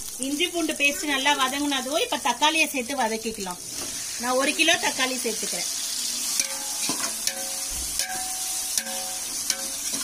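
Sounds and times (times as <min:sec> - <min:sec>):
vegetables sizzling in hot oil: 0:00.0 - 0:10.0
metal spoon knocking metal pot: 0:06.4 - 0:10.0.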